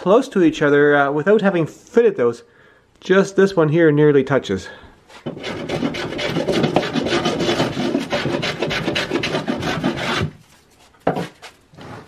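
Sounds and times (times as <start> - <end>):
rasp scraping wood: 5.1 - 10.4.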